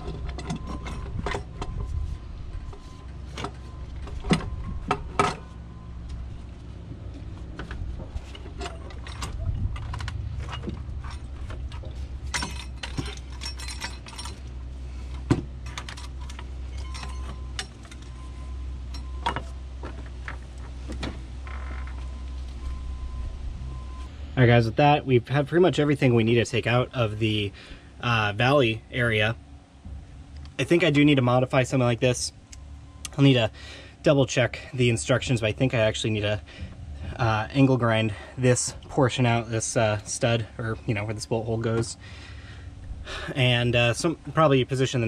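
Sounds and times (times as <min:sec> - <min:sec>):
metal tools clinking on engine parts: 0:00.0 - 0:06.5, 0:07.2 - 0:23.1
steady low hum: 0:00.0 - 0:45.0.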